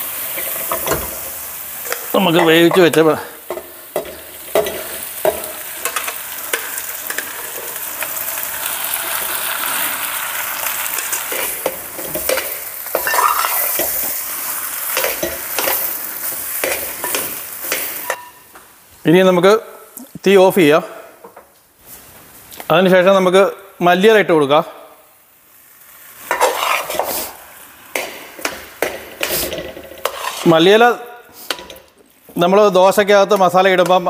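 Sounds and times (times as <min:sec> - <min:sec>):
food sizzling in a pan: 0:00.0 - 0:20.4, 0:21.5 - 0:34.0
spatula knocking and scraping pan: 0:00.4 - 0:07.6, 0:11.1 - 0:14.2, 0:27.9 - 0:30.5.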